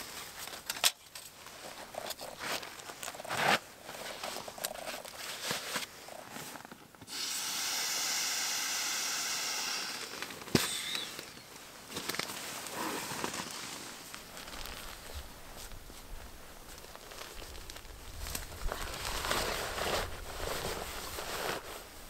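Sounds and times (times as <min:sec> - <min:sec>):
fabric rustling: 0:01.3 - 0:07.1, 0:11.2 - 0:22.0
air hissing from sleeping pad: 0:07.0 - 0:17.4.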